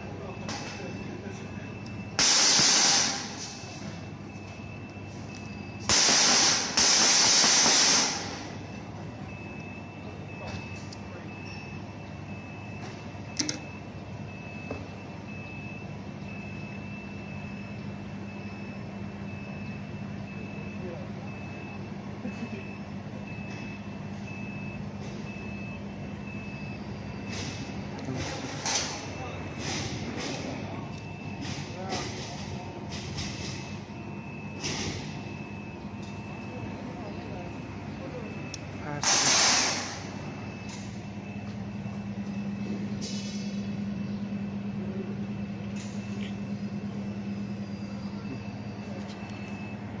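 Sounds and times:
low machine hum: 0.0 - 50.0
high electronic beep: 33.2 - 49.9.

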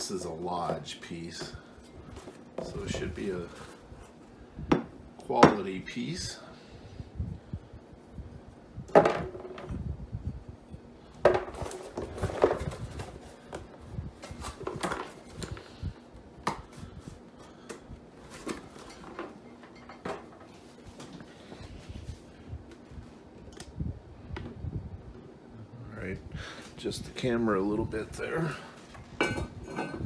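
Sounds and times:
cast iron pot clunking: 29.2 - 30.0.

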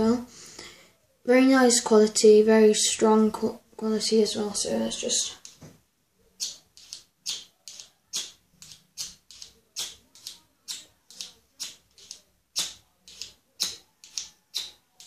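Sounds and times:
scraper scraping fire-steel rod: 6.4 - 14.7.

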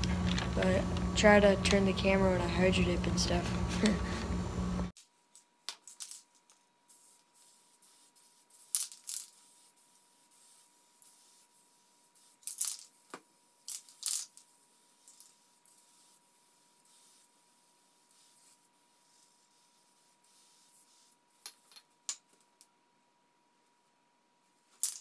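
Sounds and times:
spray paint can hissing: 6.9 - 13.0, 13.6 - 21.6.

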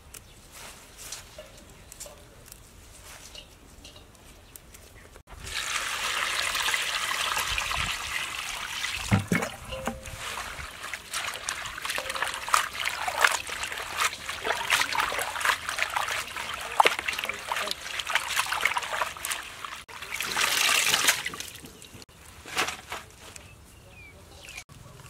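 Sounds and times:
water pouring into metal bowl: 5.4 - 21.6
hands swishing leaves in water: 5.4 - 21.9.

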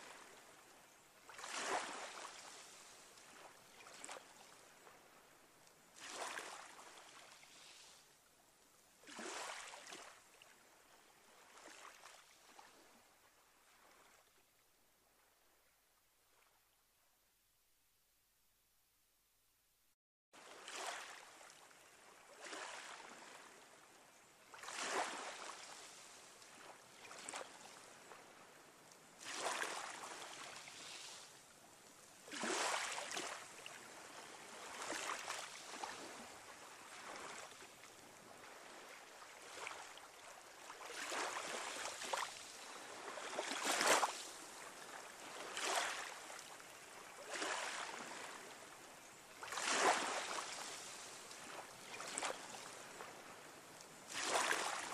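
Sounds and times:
waves washing in: 1.2 - 8.2, 20.4 - 54.9.

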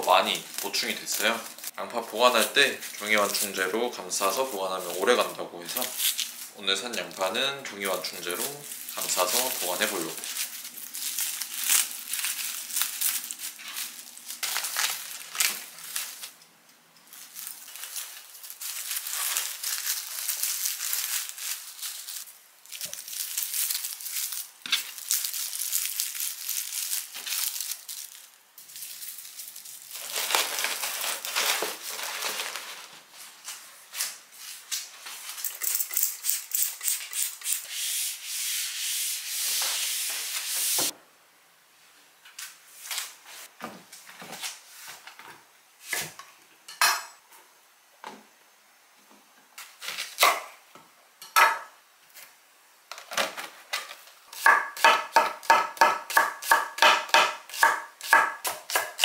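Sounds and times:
paper cushioning rustling: 0.0 - 16.4, 17.1 - 35.3.

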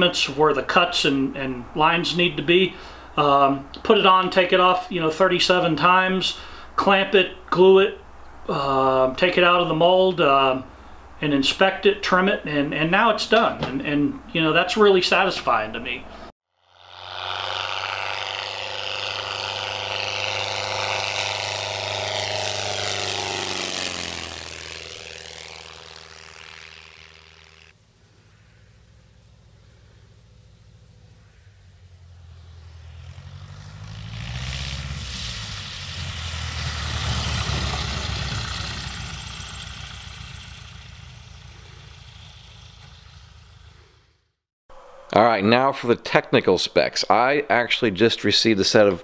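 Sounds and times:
propeller plane engine: 0.0 - 8.6, 16.0 - 45.0.

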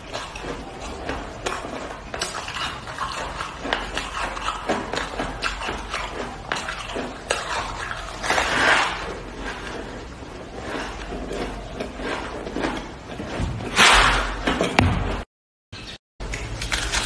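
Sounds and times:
crunching shaved ice: 0.0 - 13.3
chewing: 0.0 - 13.4.

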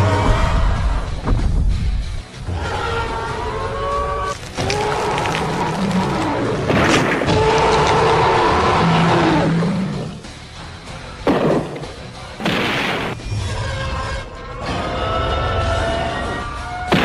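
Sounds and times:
monster roar: 7.3 - 10.0.

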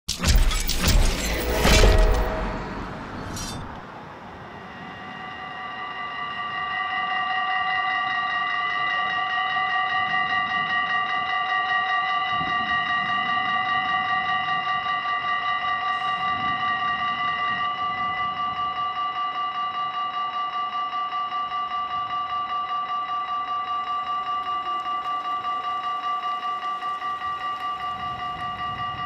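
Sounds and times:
level crossing warning bells: 0.1 - 29.0
intro sound effect with crash: 0.2 - 4.0.

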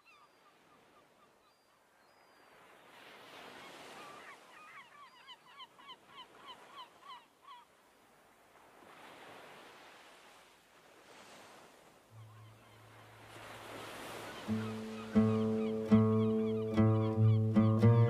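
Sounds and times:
surf washing: 8.0 - 18.0
birds honking: 12.2 - 18.0.

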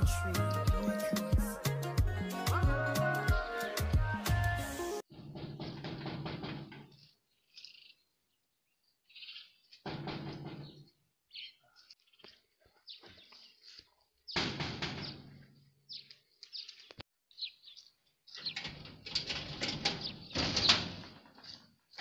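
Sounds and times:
metal gate rattling: 5.1 - 7.2, 9.8 - 10.9, 14.4 - 15.7, 18.3 - 22.0
birds chirping: 6.8 - 22.0.

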